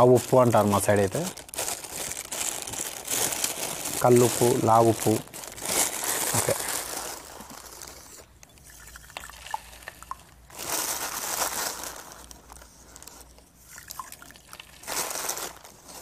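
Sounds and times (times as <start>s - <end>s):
plastic packet crinkling: 0.0s - 16.0s
salt grains ticking: 7.2s - 15.6s
salt pouring into water: 7.8s - 11.0s, 13.6s - 15.5s.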